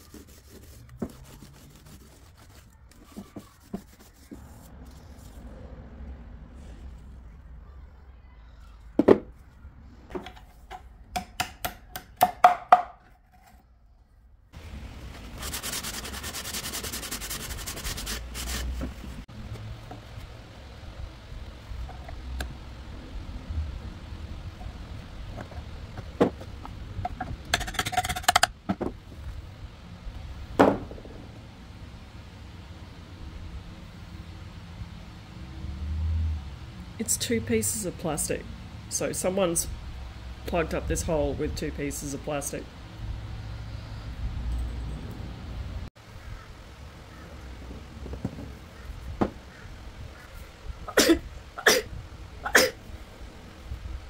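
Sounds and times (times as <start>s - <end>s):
short sharp coughs: 50.9s - 52.8s.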